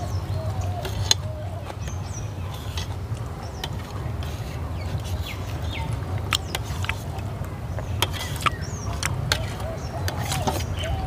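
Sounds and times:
bird chirping: 0.0s - 11.0s
wet eating clicks and smacks: 6.2s - 7.0s.

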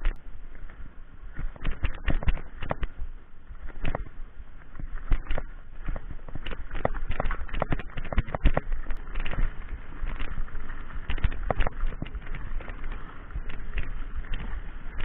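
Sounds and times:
tyre noise on dirt: 0.0s - 15.0s
wind rumble on microphone: 0.0s - 15.0s
bike clattering over rocks: 4.7s - 15.0s.

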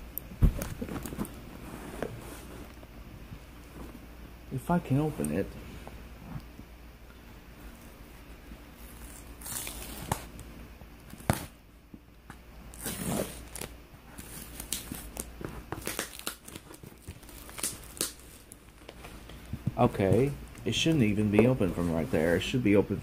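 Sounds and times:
packaging tearing and crinkling: 8.8s - 10.4s, 12.7s - 18.9s.

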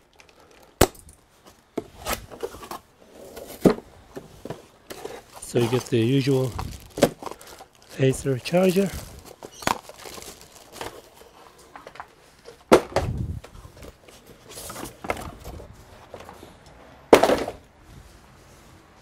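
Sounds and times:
cardboard box and foam moved: 1.9s - 12.5s, 13.5s - 16.6s
plastic wrap crinkling: 5.0s - 12.1s.

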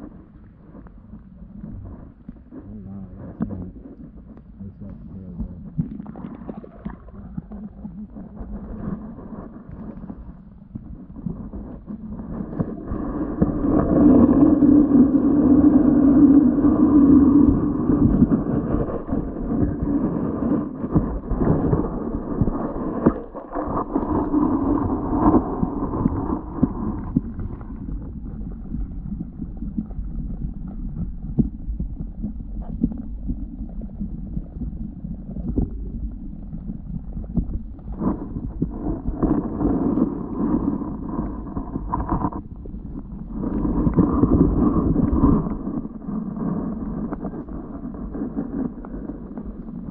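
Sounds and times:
droning hum: 0.0s - 49.9s
muffled underwater rumble: 0.0s - 49.9s.

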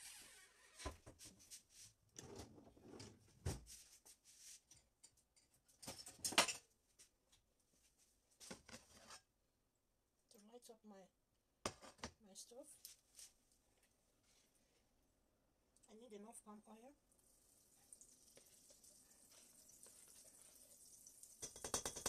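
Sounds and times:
kitchen items clicking and knocking: 4.7s - 6.7s, 21.4s - 22.0s.

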